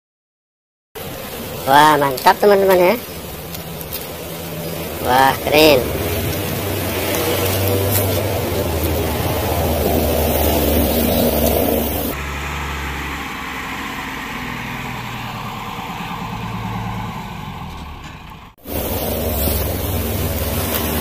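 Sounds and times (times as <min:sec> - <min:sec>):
steady hiss: 0:18.6 - 0:21.0.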